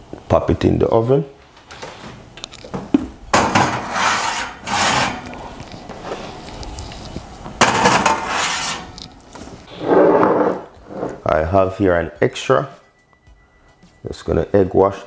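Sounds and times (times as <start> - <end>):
ceramic ramekins scraping: 3.4 - 6.4, 7.0 - 11.3.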